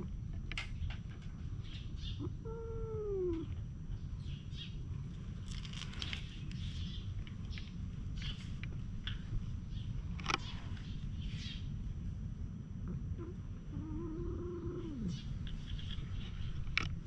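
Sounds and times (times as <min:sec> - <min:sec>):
cat yowling: 0:02.2 - 0:03.5, 0:13.2 - 0:15.2.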